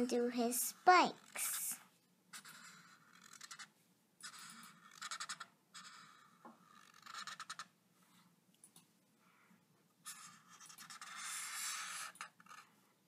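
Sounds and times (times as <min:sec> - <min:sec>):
marker pen scratching: 0:00.7 - 0:08.3, 0:10.0 - 0:12.8.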